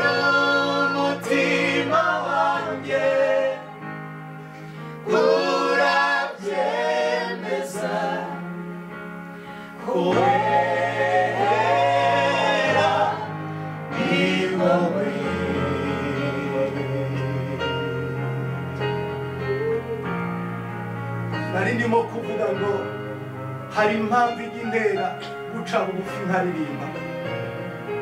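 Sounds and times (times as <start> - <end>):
voices singing together: 0.0 - 4.0, 4.7 - 18.6
held chords: 0.0 - 28.0.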